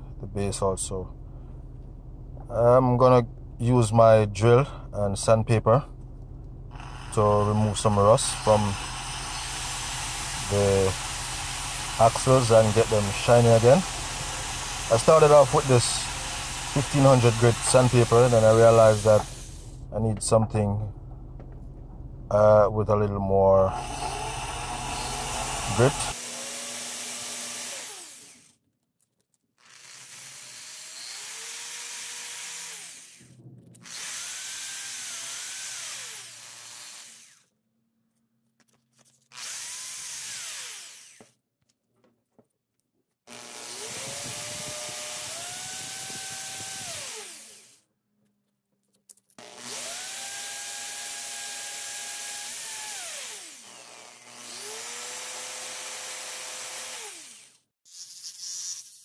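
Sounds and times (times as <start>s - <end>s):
electric drill motor whine: 6.7s - 19.7s, 23.7s - 28.5s, 29.6s - 37.5s, 39.3s - 41.3s, 43.3s - 47.8s, 49.4s - 59.0s.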